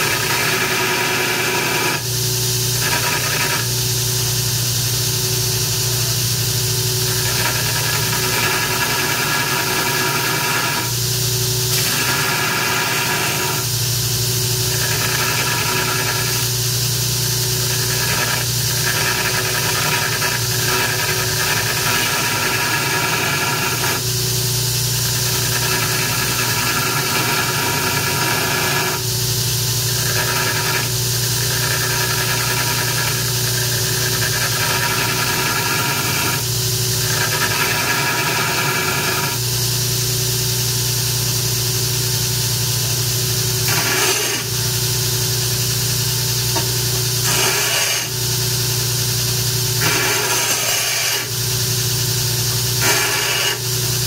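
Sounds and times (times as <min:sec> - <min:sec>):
belt grinder grinding steel: 0:00.0 - 0:03.8, 0:05.6 - 0:24.1, 0:24.9 - 0:39.4, 0:42.5 - 0:54.0
motor hum: 0:25.0 - 0:54.0.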